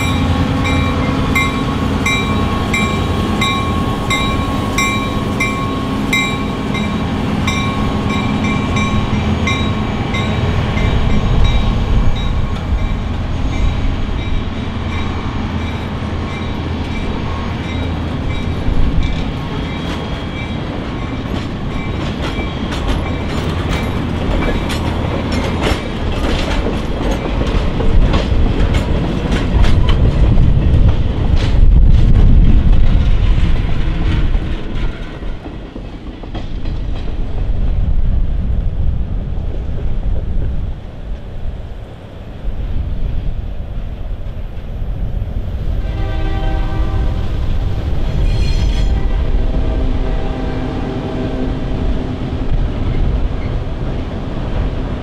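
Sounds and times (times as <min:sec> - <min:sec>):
locomotive bell ringing: 0:00.0 - 0:25.9, 0:48.1 - 0:49.1
train wheels clacking on rail joints: 0:00.0 - 0:37.7
diesel locomotive hum: 0:00.0 - 0:55.0
train coaches rumbling past: 0:00.0 - 0:55.0.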